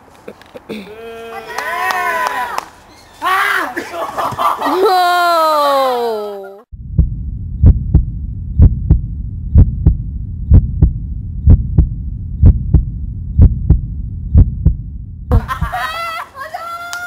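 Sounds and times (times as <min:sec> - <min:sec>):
heartbeat thumps: 0:06.7 - 0:15.8
steady low hum: 0:06.7 - 0:15.8.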